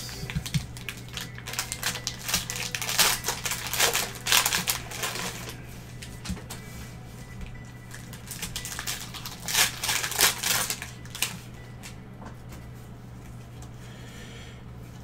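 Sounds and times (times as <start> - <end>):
plastic wrapper crinkling and tearing: 0.2 - 5.6, 7.9 - 11.5.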